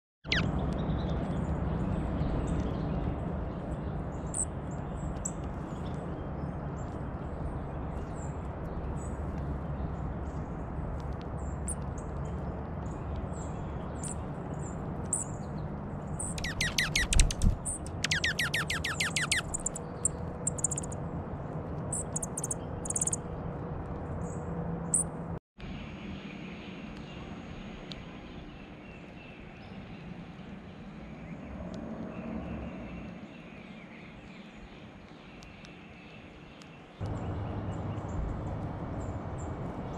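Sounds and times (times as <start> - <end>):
bird rapid trill: 0.2 - 0.5, 16.2 - 21.0, 21.9 - 23.2
bird high chip notes: 16.2 - 19.8.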